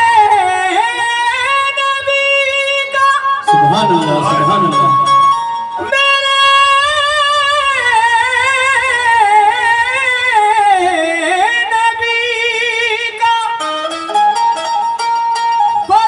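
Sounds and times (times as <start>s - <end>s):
harmonium: 0.0s - 16.0s
person singing melismatic phrase: 3.5s - 5.2s.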